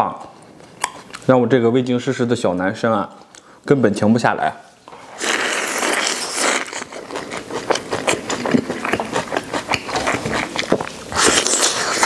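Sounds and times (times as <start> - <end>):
crunchy chewing: 5.2 - 12.0.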